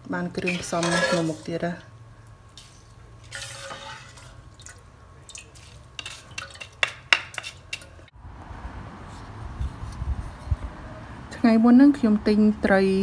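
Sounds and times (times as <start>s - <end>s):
metal spoon stirring in pot: 0.3s - 1.8s, 2.5s - 8.1s
hot oil hissing: 3.3s - 4.5s
spoon clinking against pot: 5.3s - 8.0s.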